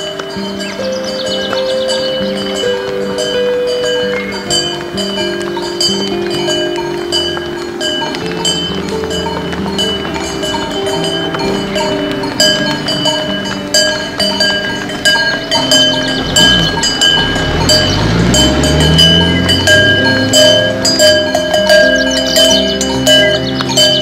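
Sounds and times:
cowbells clanking: 0.0 - 24.0
cow mooing: 15.5 - 20.7.

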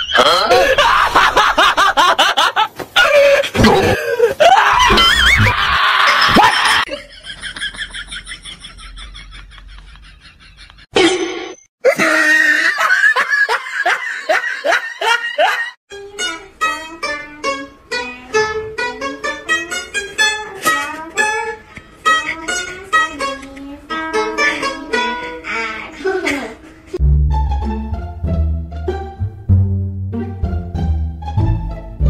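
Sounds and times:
pipa plucked notes: 15.9 - 25.8, 27.0 - 32.0.

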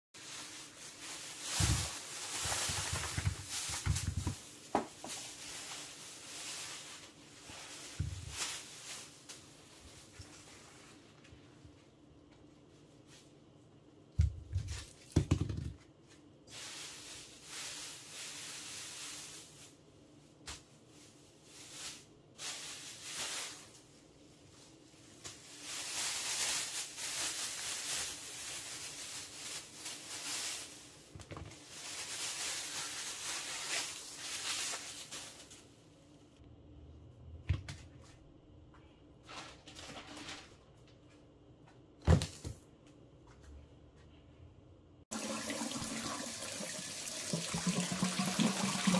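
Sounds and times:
rustling: 0.2 - 11.9, 16.0 - 35.8
produce knocking on countertop: 3.1 - 5.1, 14.2 - 15.8.

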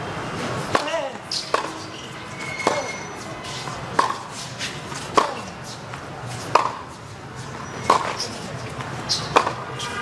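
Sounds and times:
tennis ball bouncing on court: 0.6 - 1.8, 2.6 - 2.9, 3.5 - 9.7.

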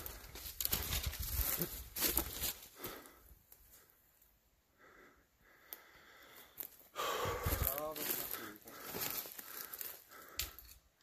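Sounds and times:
footsteps crunching through dry brush: 0.0 - 3.8, 6.3 - 10.7
twigs snapping underfoot: 9.0 - 10.8.

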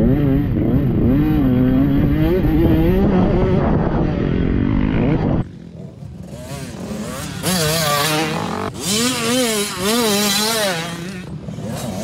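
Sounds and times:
dirt bike engines revving: 0.0 - 12.0.

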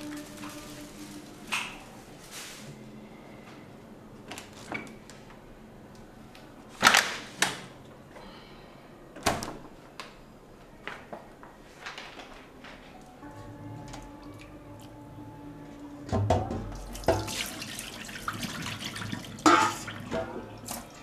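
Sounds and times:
knocks and clacks of containers: 16.1 - 17.6, 19.4 - 20.9.

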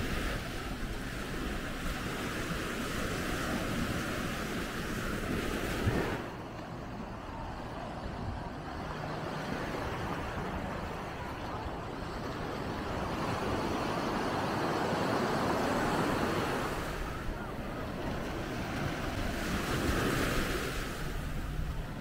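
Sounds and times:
surf washing onto beach: 0.0 - 22.0
wind: 0.0 - 22.0.

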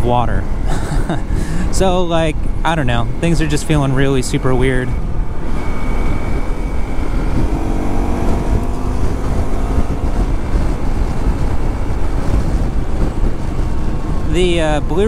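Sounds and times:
wind rumble on microphone: 0.0 - 15.0
motorcycle engine running: 5.0 - 14.3.

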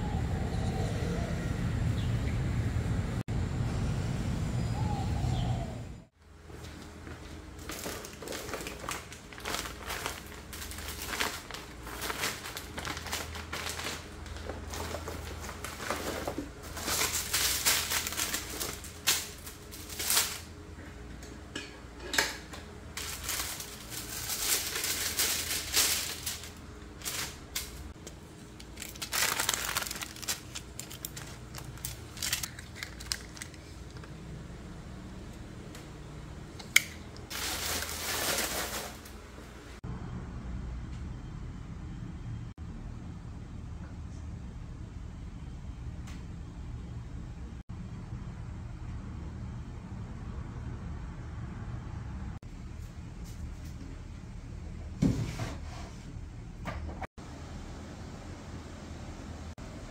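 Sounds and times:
paper sheets rustling: 6.6 - 20.5, 22.9 - 34.0, 37.3 - 39.2
foil blister packs crinkling: 7.5 - 20.5, 22.9 - 34.1, 37.3 - 39.1.

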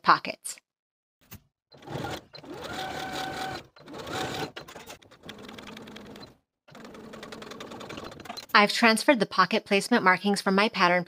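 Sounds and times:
sewing machine stitching: 1.8 - 8.5.

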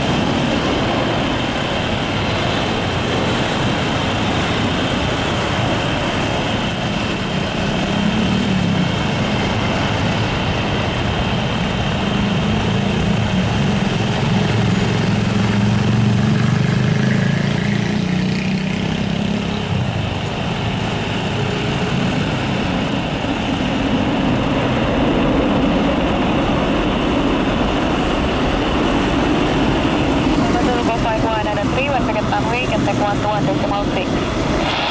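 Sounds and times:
jet engines roaring: 0.0 - 17.7, 19.0 - 34.9.

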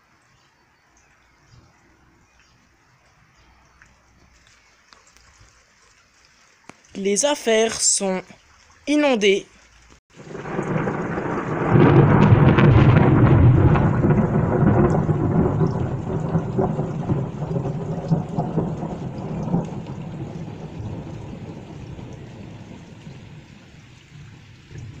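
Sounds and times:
rain falling: 0.0 - 25.0
thunder rolling: 10.1 - 25.0.

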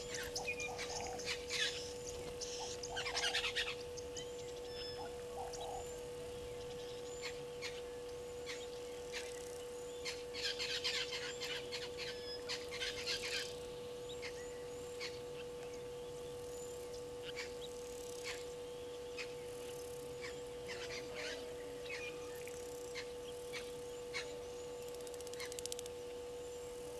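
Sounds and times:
birds chirping and whistling: 0.0 - 25.7
electrical hum: 0.0 - 26.9.

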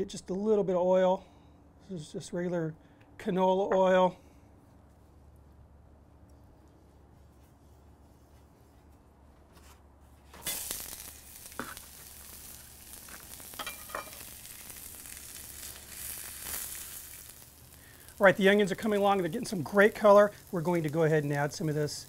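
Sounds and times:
onions sizzling on a griddle: 10.4 - 22.0.

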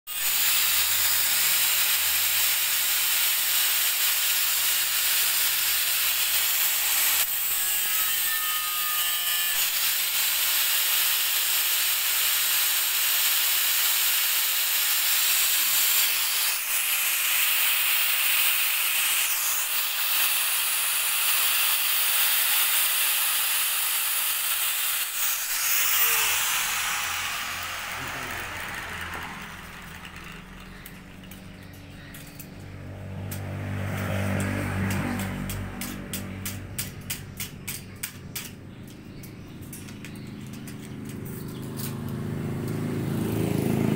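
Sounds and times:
grinder motor winding down: 0.1 - 36.6
angle grinder cutting steel: 0.1 - 38.6.

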